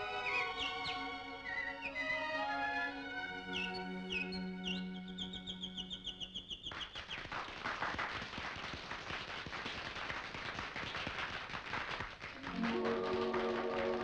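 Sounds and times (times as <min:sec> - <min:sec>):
audience applause: 0:06.7 - 0:14.0.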